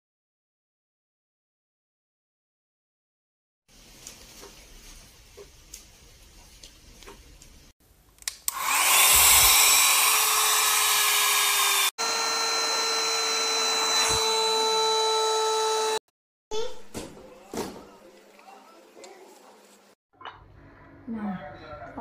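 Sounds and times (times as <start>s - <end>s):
handheld vacuum motor whining: 8.5s - 16.0s.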